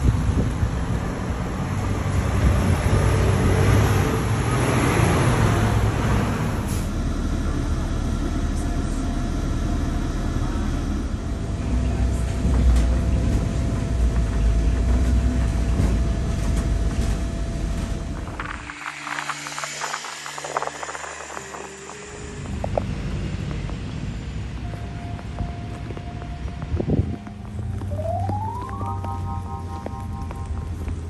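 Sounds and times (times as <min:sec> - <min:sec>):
bus engine and road rumble: 0:00.0 - 0:31.0
faint steady whine: 0:17.2 - 0:31.0
bright rushing noise: 0:18.2 - 0:23.5.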